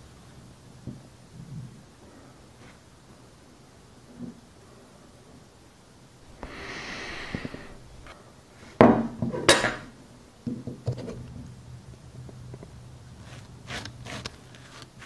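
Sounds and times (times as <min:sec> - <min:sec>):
soap rustling: 0:13.1 - 0:15.0.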